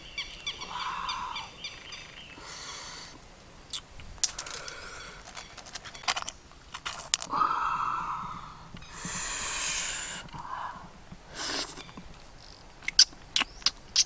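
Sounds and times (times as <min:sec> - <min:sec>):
clam shells clinking: 0:04.2 - 0:07.3.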